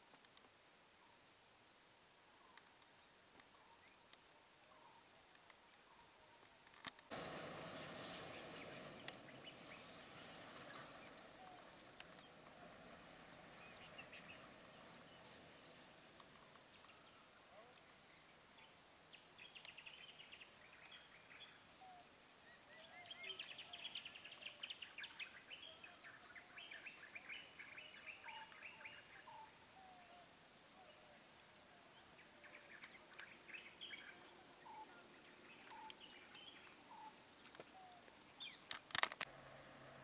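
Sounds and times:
faint birdsong: 0:00.3 - 0:40.0.

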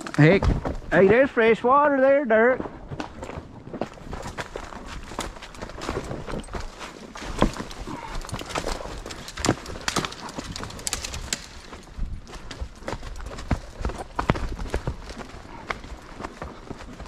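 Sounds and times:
horse hooves crunching leaves: 0:02.9 - 0:17.0
twigs snapping: 0:07.1 - 0:15.8.

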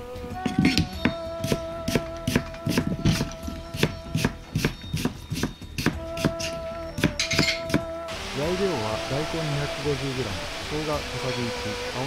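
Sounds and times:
background music with held tones: 0:00.0 - 0:12.0
knife chopping on cutting board: 0:00.5 - 0:07.8.

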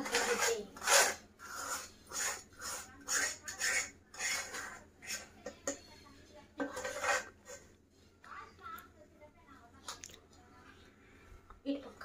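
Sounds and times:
utensil scraping metal pan: 0:00.0 - 0:05.9, 0:06.6 - 0:07.7.

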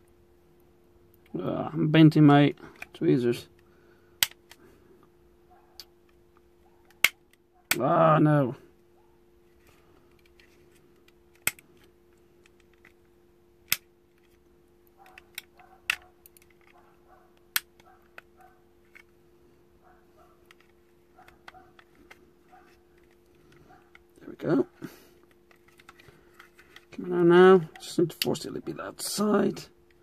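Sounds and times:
faint steady hum: 0:00.0 - 0:30.0
tweezers snapping plastic tabs: 0:04.2 - 0:04.6, 0:13.7 - 0:13.9
quiet ticks and scratching: 0:14.1 - 0:19.1, 0:19.8 - 0:24.3.

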